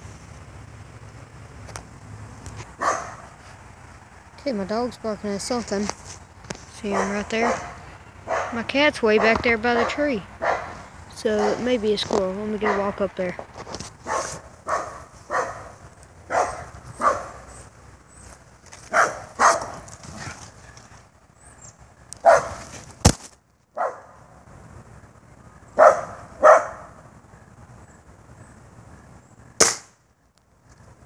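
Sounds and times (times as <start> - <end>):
dog barking: 2.8 - 3.3, 6.9 - 8.6, 9.2 - 10.8, 11.4 - 11.7, 12.6 - 13.0, 14.0 - 17.4, 18.9 - 20.3, 22.2 - 22.6, 23.8 - 24.2, 25.8 - 27.0.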